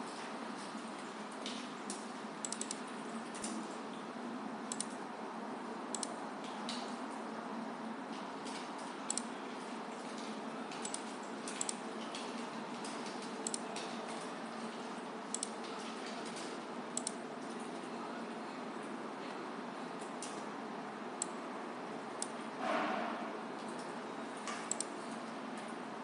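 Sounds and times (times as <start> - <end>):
computer mouse clicking: 2.4 - 2.8, 4.7 - 5.0, 5.9 - 6.1, 9.1 - 9.3, 10.8 - 11.8, 13.4 - 13.6, 15.3 - 15.6, 17.0 - 17.2, 24.5 - 24.9.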